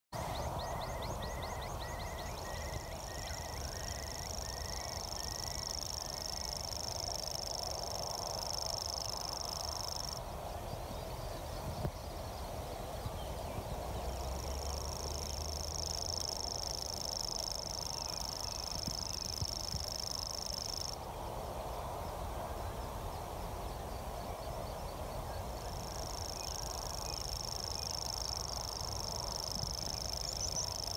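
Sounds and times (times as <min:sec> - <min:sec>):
bird reeling trill: 0:00.2 - 0:10.2
wind rumbling on microphone: 0:00.2 - 0:30.9.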